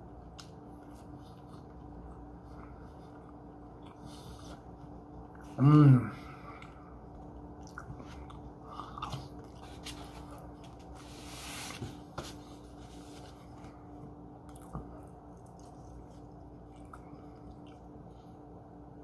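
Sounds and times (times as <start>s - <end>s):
person chewing: 6.4s - 10.8s, 14.4s - 18.0s.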